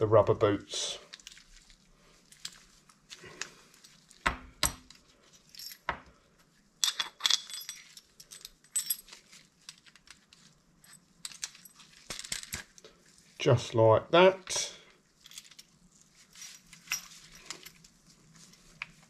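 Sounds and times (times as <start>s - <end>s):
metal parts clinking: 6.8s - 12.8s, 15.2s - 17.8s.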